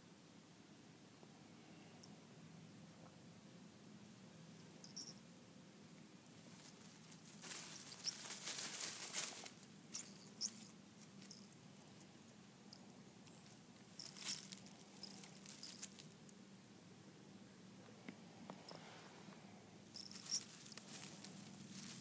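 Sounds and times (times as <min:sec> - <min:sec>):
cat rustling through leaves: 0:06.4 - 0:10.5, 0:13.9 - 0:16.2, 0:19.9 - 0:22.0.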